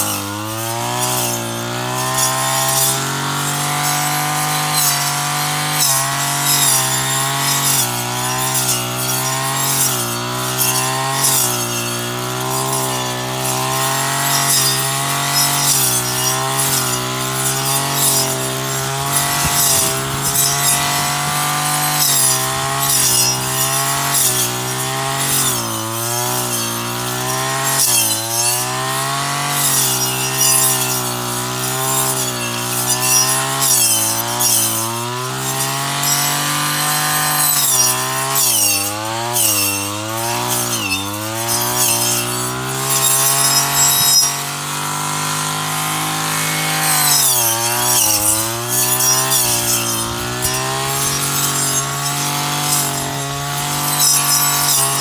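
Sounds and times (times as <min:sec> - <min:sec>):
brush cutter engine at high revs: 0:00.0 - 0:55.0.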